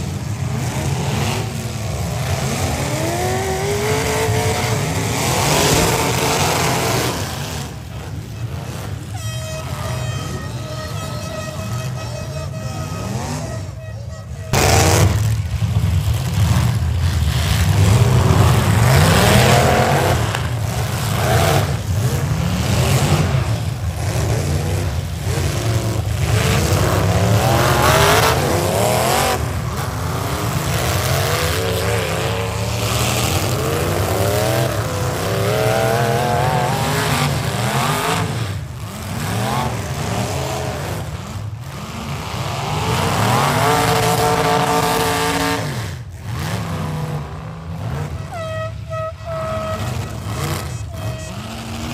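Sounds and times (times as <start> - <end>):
car engines revving: 0.0 - 51.9.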